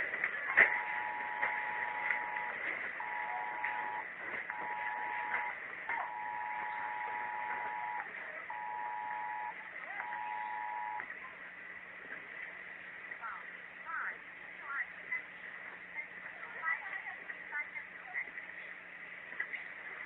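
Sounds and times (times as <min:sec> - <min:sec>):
electronic alarm beeping: 0:00.6 - 0:11.0.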